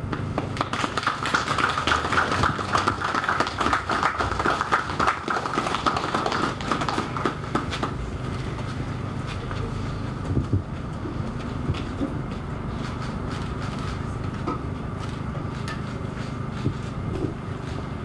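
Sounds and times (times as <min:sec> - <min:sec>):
audience applauding: 0:00.4 - 0:07.9.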